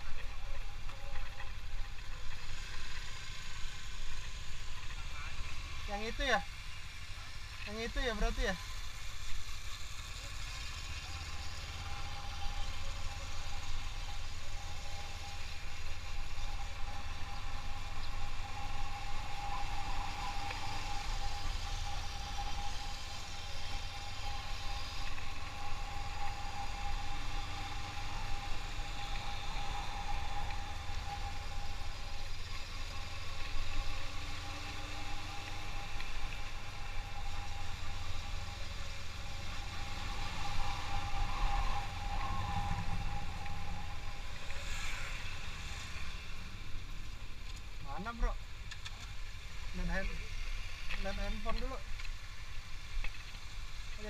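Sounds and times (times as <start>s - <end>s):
motorcycle engine running: 0.0s - 53.4s
thin steady whine: 0.0s - 54.0s
wind rumble on microphone: 10.7s - 48.4s.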